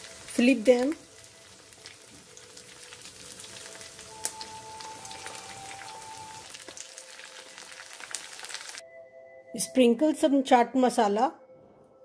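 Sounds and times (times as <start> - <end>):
patties sizzling in hot oil: 0.0 - 8.8.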